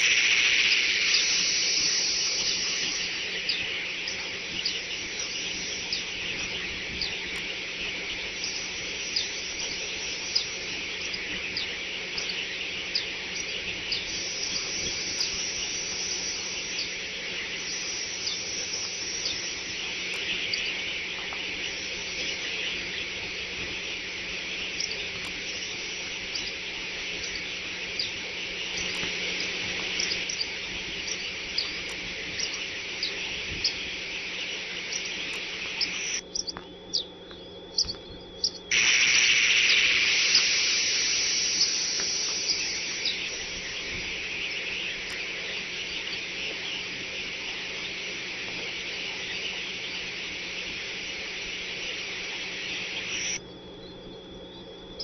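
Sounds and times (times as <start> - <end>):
faint electrical hum: 0.0 - 55.0
high-pitched chirring: 37.7 - 47.4.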